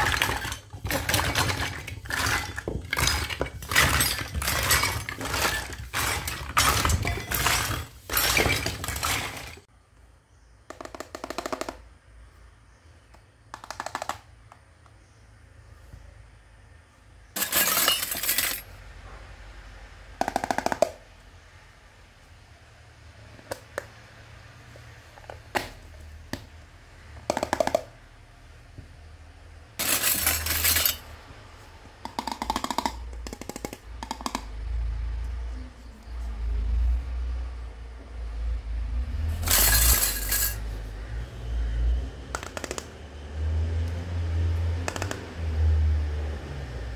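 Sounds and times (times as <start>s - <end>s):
plastic toys clicking and knocking: 0.0s - 9.7s, 10.6s - 12.0s, 13.1s - 15.0s, 20.2s - 21.1s, 27.1s - 28.0s, 29.8s - 31.0s, 31.9s - 34.8s, 39.4s - 40.7s, 42.3s - 43.0s, 44.8s - 45.3s
toy kitchen pieces clattering: 0.0s - 9.7s, 17.4s - 18.7s, 29.8s - 31.1s, 39.2s - 40.7s.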